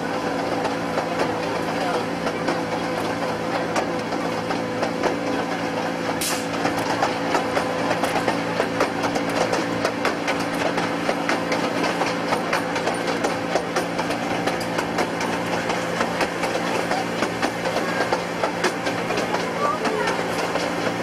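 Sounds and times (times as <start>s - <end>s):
miniature train engine humming: 0.0s - 21.0s
wheels clicking and rattling on track: 0.0s - 21.0s.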